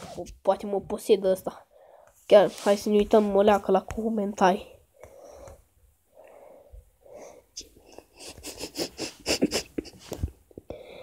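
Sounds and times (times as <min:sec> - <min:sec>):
person breathy wheezing sounds: 0:06.3 - 0:11.0.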